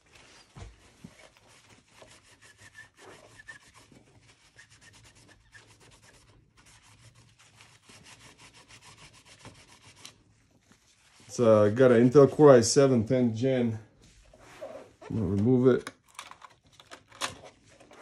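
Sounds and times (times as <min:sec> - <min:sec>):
paper towel rubbing on metal: 0:00.0 - 0:12.5.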